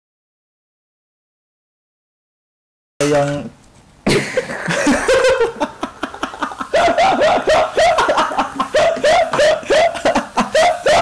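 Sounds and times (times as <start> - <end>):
man laughing hard: 4.1 - 11.0.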